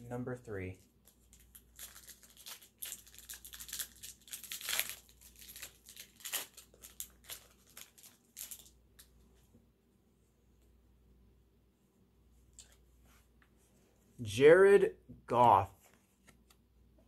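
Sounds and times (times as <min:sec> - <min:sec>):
foil wrapper tearing and crinkling: 0:01.3 - 0:08.7.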